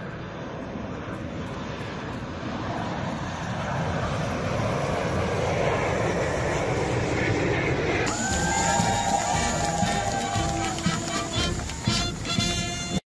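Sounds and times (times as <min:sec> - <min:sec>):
jet aircraft flying overhead: 0:00.0 - 0:13.0.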